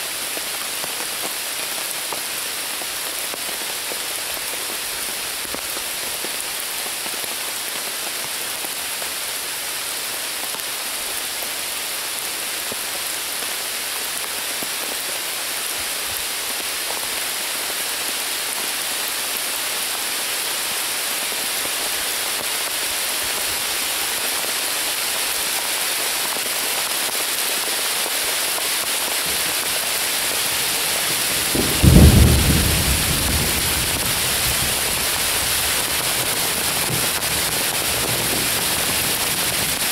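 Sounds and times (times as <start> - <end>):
rain on leaves: 0.0 - 39.9
thunder clap rumbling: 31.1 - 37.3.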